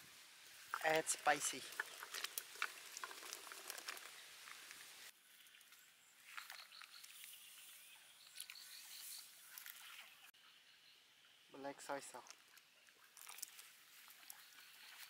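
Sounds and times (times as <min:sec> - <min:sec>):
wood fire crackling: 0:00.0 - 0:05.1.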